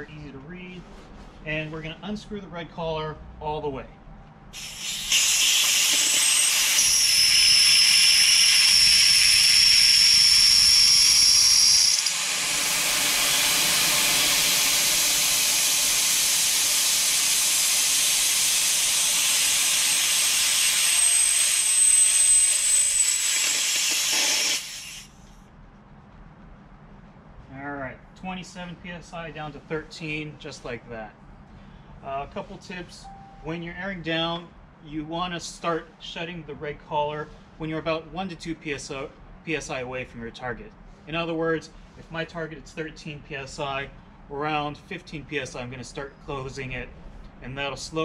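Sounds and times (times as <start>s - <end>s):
air hissing out of a tire: 4.6s - 8.3s, 12.2s - 25.3s
high whistle: 20.9s - 25.1s, 33.0s - 33.5s.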